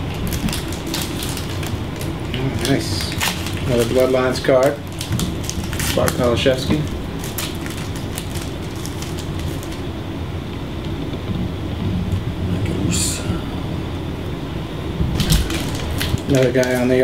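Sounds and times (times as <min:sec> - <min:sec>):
wrapper rustling: 0:00.0 - 0:09.9, 0:15.1 - 0:17.0
low room rumble: 0:00.0 - 0:17.0.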